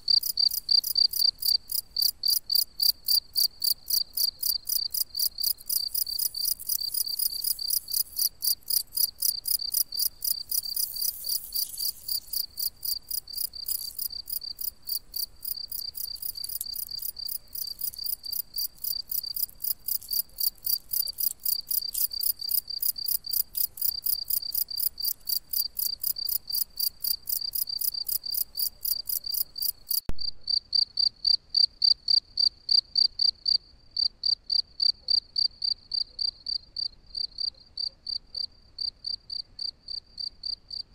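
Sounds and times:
cricket chirping: 0:00.0 - 0:40.8.

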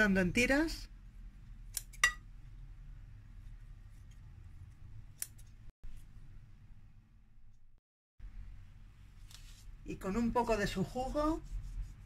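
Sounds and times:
scissors snipping: 0:01.7 - 0:02.0, 0:05.1 - 0:05.6.

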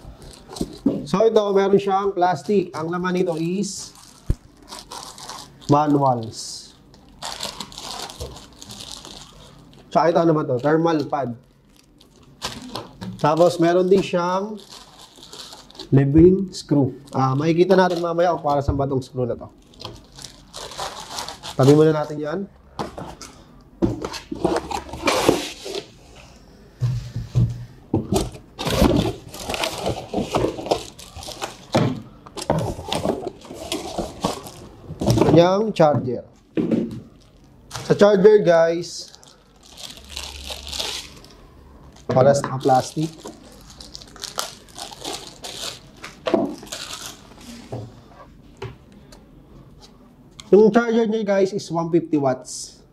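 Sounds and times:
plastic wrap rustling: 0:00.0 - 0:23.4, 0:28.1 - 0:35.8, 0:37.0 - 0:48.3
plastic bag crinkling: 0:01.4 - 0:18.7, 0:19.4 - 0:22.3, 0:28.6 - 0:31.8, 0:32.4 - 0:35.6, 0:37.0 - 0:47.7.

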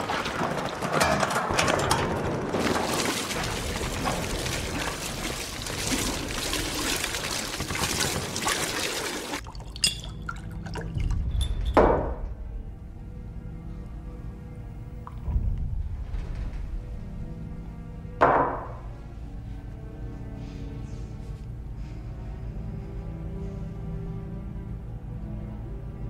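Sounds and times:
liquid pouring and splashing: 0:00.0 - 0:12.3
low rumble: 0:10.7 - 0:26.0.

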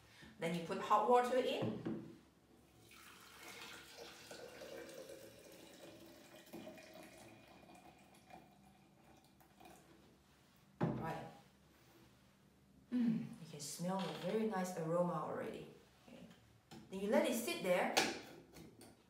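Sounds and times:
hot water pouring splash: 0:02.8 - 0:09.8.

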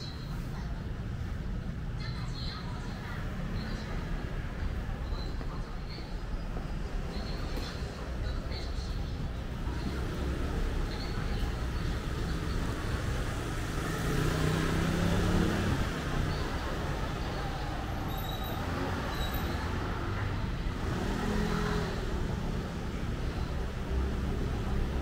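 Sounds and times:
street traffic: 0:00.0 - 0:25.0
vehicle passing loudly: 0:12.5 - 0:17.9, 0:18.5 - 0:25.0.

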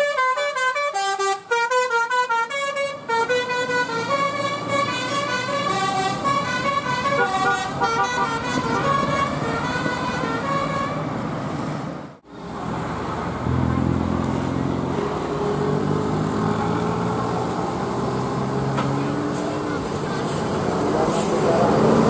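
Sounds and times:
musical air horn tune: 0:00.0 - 0:11.0
bus engine droning: 0:00.0 - 0:22.0.

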